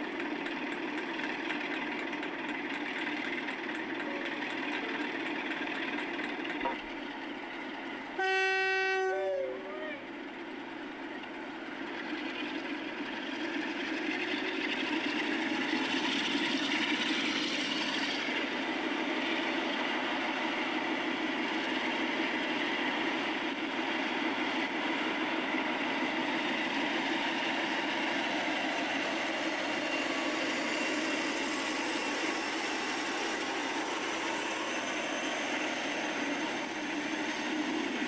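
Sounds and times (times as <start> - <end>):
mechanical drone with high whine: 0.0 - 38.0.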